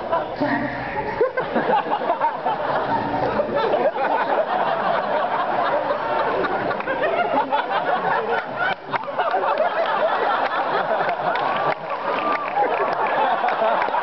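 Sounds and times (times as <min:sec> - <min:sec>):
audience chuckling: 0:00.0 - 0:14.0.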